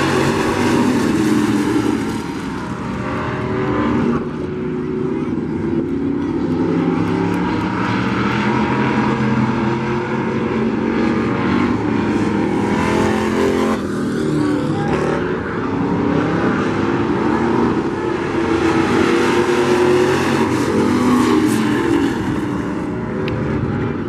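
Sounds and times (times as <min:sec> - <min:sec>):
race truck engines revving: 0:00.0 - 0:24.0.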